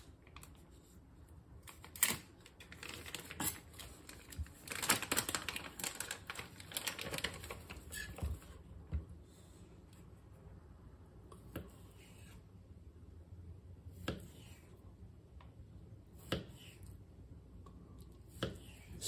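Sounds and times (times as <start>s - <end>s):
plastic bag crinkling: 1.7s - 8.1s.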